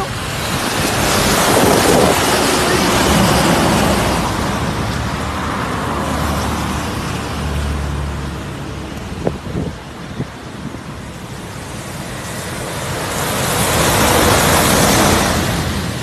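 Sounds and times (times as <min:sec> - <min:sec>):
low rumble of passing traffic: 0:00.0 - 0:16.0
truck tyres hissing on wet road: 0:00.0 - 0:16.0.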